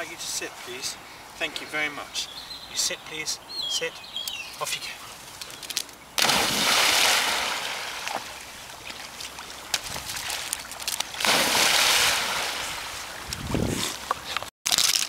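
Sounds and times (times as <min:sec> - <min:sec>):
dog splashing into water: 0:09.1 - 0:13.0.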